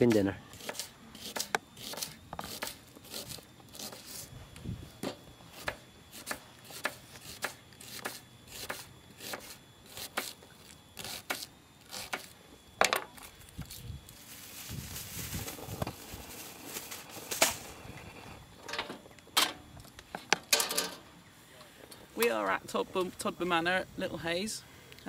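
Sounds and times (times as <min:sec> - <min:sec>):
knife chopping on a board: 0:05.6 - 0:10.3.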